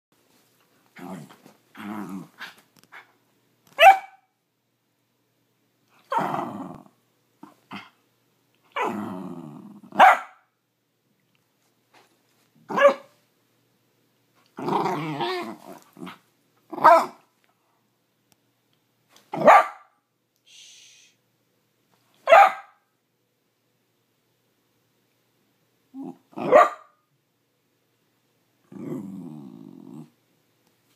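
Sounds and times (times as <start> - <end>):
dog growling: 1.0 - 2.6, 6.1 - 8.0, 8.7 - 10.0, 14.6 - 17.2, 25.9 - 26.6, 28.6 - 30.2
dog barking: 3.8 - 4.3, 10.0 - 10.5, 12.7 - 13.2, 16.8 - 17.2, 19.3 - 20.0, 22.2 - 22.8, 26.4 - 27.0.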